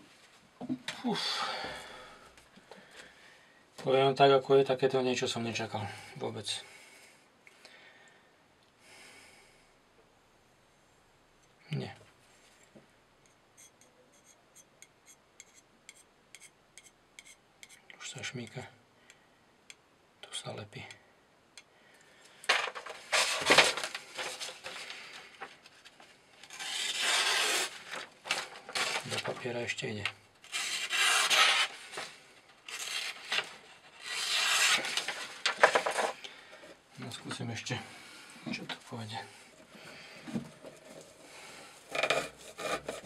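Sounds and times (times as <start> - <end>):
knife blade cutting rope: 26.4 - 27.8, 30.4 - 31.8, 32.7 - 35.0.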